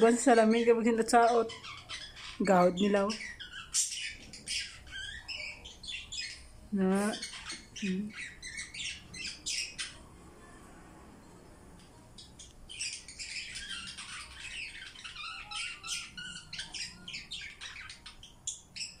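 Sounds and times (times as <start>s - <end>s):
budgerigar chattering: 1.2s - 6.4s.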